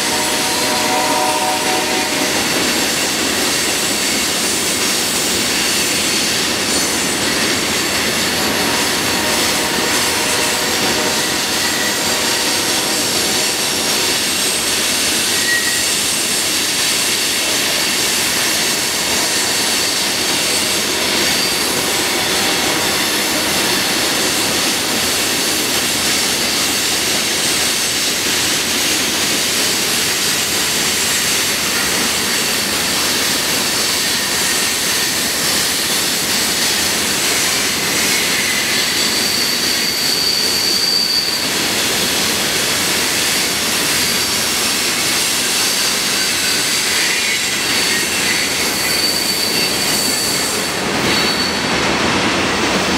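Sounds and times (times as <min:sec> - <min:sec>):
steel wheels rumbling on rail: 0:00.0 - 0:52.9
wheel flange squeal: 0:06.8 - 0:24.4, 0:37.9 - 0:42.0, 0:45.5 - 0:51.7.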